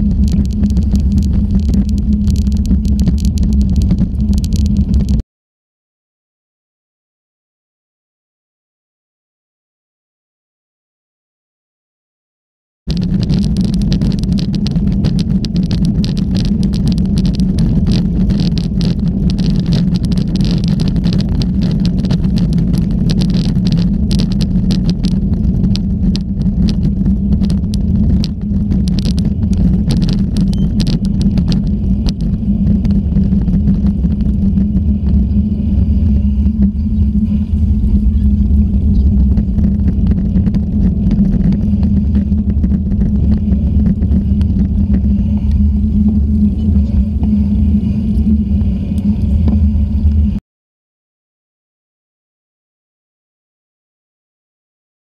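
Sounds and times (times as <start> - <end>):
tyre noise on wet road: 0.0 - 5.2, 12.9 - 49.7
wind rumble on microphone: 0.0 - 5.2, 12.9 - 50.4.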